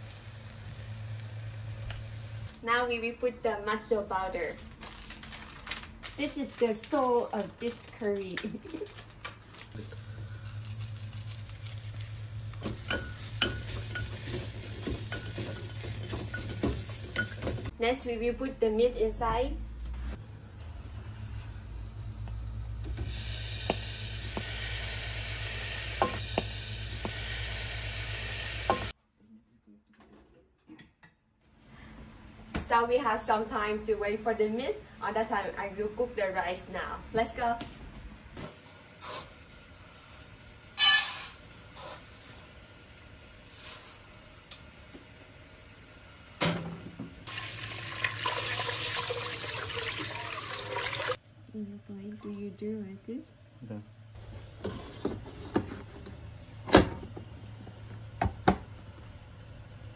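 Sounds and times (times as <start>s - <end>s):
meat sizzling in hot oil: 0.0s - 2.5s, 9.8s - 17.7s, 23.0s - 28.9s, 47.3s - 51.2s
tap water running into pot: 47.3s - 51.2s.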